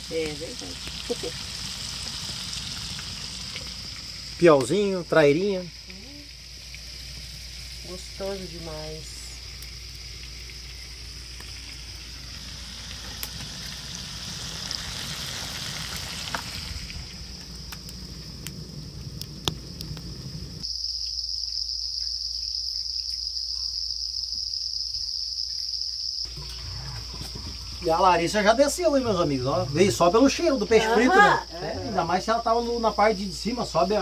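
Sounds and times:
fish frying in a pan: 0:00.0 - 0:21.7
insects chirring: 0:00.0 - 0:34.0.

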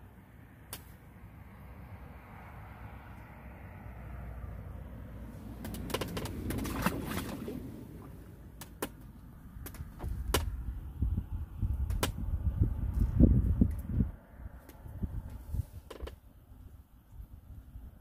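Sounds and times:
fishing tackle clicks and rustles: 0:05.6 - 0:07.5.

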